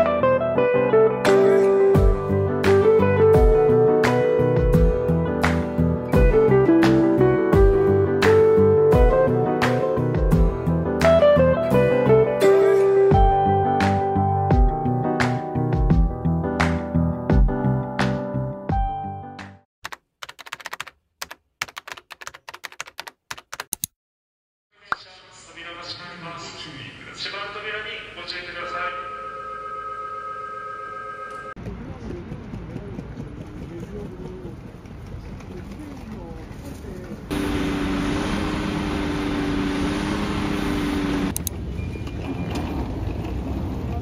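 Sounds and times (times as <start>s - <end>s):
keyboard typing clicks: 19.8s - 23.9s
shuttle bus idling: 37.3s - 41.4s.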